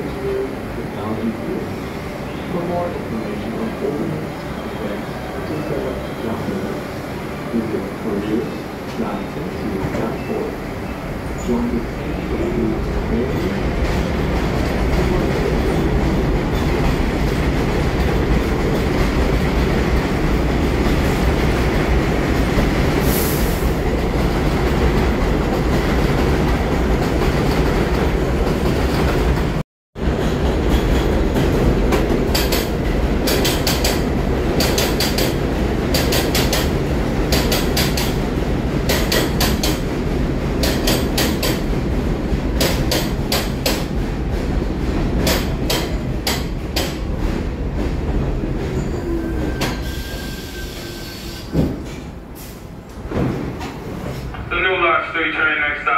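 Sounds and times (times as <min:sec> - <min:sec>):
subway train running past: 0:00.0 - 0:55.9
train wheels clicking over rail joints: 0:13.2 - 0:48.5.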